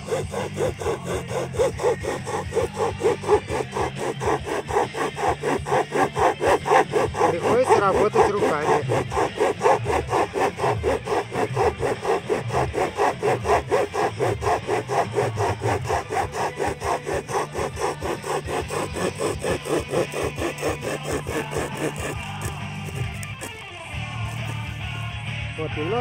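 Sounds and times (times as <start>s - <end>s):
hand chain saw cutting wood: 0.0s - 25.1s.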